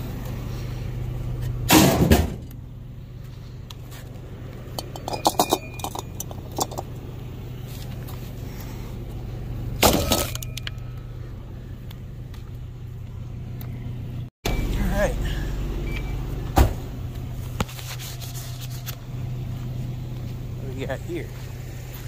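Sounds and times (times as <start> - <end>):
truck engine idling: 0.0 - 22.0
scrap metal clattering into truck bed: 1.7 - 2.5
light metallic clinks: 4.7 - 6.9.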